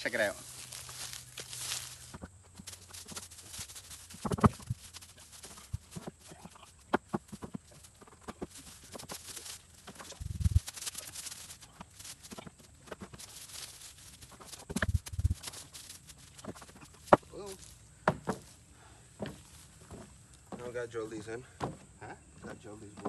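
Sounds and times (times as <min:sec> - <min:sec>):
dull heavy thumps: 0:18.0 - 0:18.6, 0:19.2 - 0:20.8, 0:21.5 - 0:22.0.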